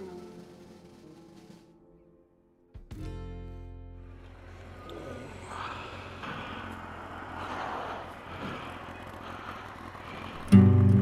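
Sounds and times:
motorcycle engine hum: 4.0 - 11.0
wind and road noise: 4.0 - 11.0.

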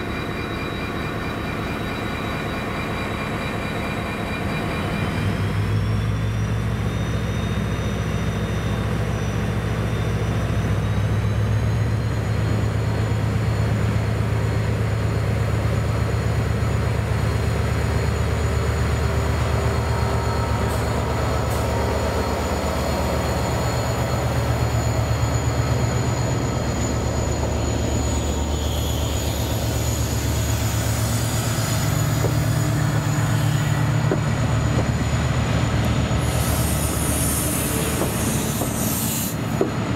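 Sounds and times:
diesel locomotive engine under load: 0.0 - 39.9
wheels squealing on rails: 0.0 - 39.9.

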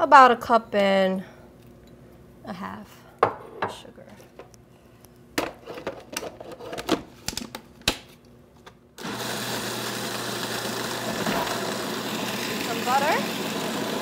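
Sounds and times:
food processor running: 9.0 - 14.0.

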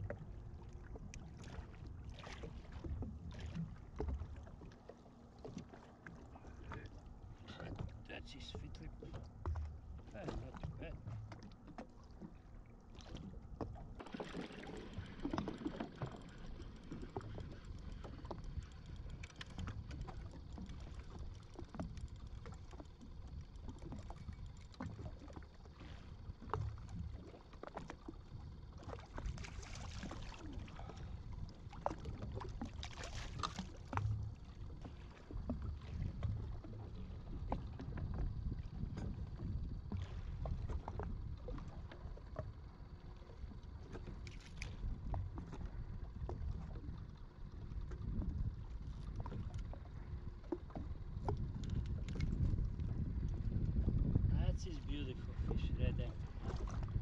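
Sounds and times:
waves lapping against hull: 0.0 - 57.0
wind rumbling on microphone: 34.9 - 42.9, 43.6 - 57.0.

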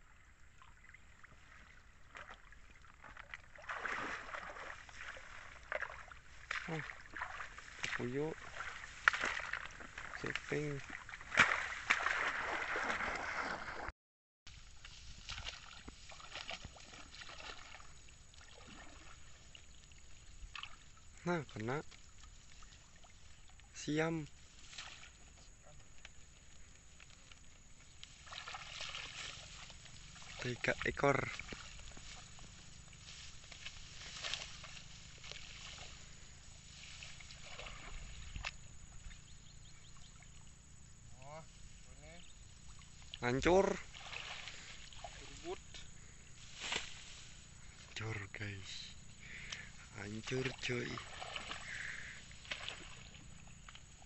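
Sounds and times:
light water splashes: 0.0 - 13.9, 14.5 - 54.0
floodwater sloshing: 0.1 - 13.9, 14.5 - 41.8, 42.4 - 47.9, 48.9 - 54.0
wet grass rustling: 0.4 - 13.9, 14.5 - 54.0
small crackles: 24.4 - 30.4.

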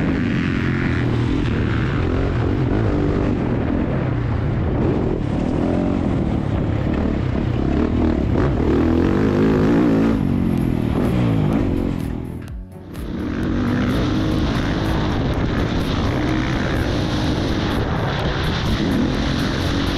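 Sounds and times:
motocross bike engine revving: 0.0 - 19.9.

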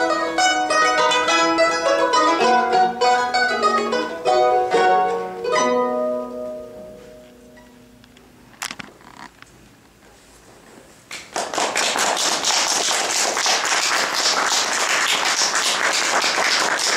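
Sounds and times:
mandolin chord ringing: 0.0 - 8.4
audience applauding: 11.1 - 16.9.

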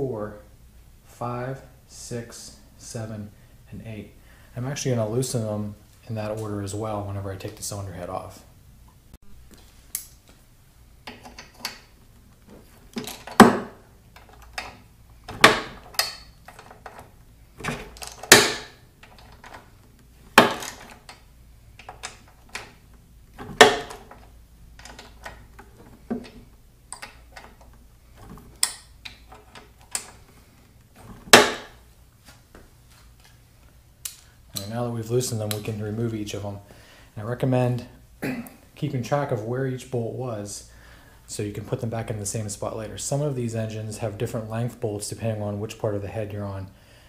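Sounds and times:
bolts cracking loose: 11.0 - 31.8.

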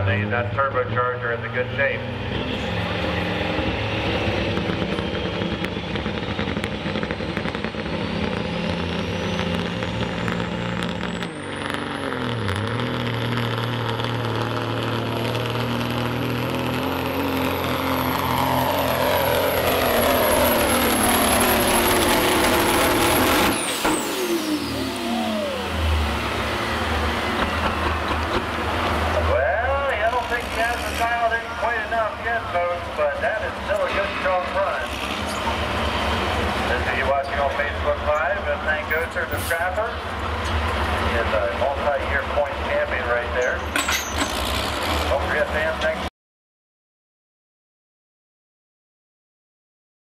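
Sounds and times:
diesel engine at full load: 0.0 - 46.1
turbo whine: 2.4 - 28.6.

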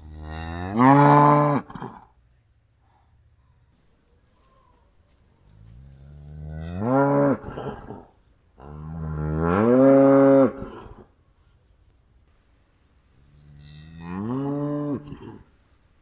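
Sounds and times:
cow mooing: 13.5 - 15.4.

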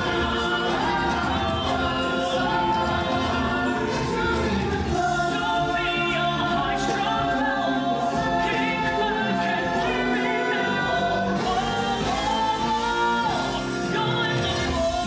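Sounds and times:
choir singing: 0.0 - 15.0.

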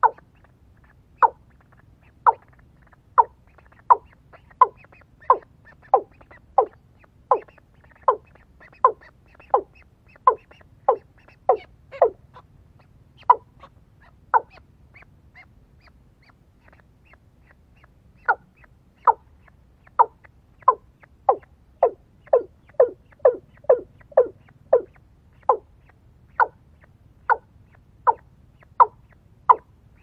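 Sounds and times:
watercock calling: 1.2 - 17.2, 17.8 - 30.0.

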